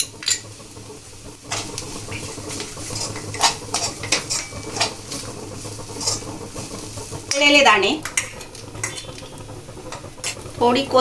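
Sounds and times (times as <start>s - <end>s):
spoon clinking and scraping pan: 0.0s - 0.6s, 2.6s - 5.0s, 8.0s - 9.2s
faint sizzle of frying: 0.0s - 11.0s.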